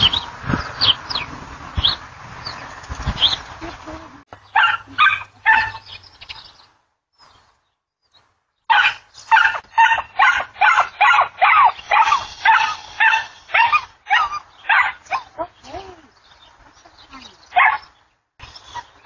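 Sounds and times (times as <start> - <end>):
dog barking: 4.6 - 5.8, 8.7 - 15.5, 17.5 - 17.9.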